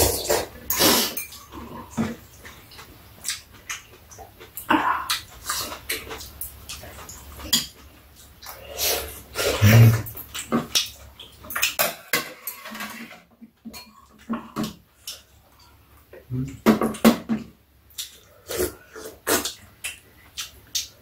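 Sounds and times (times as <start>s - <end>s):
chewing: 0.0s - 11.8s.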